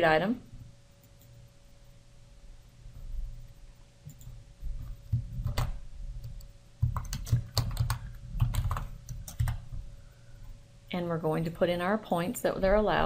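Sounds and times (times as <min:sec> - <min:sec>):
computer keyboard typing: 0:04.0 - 0:09.7.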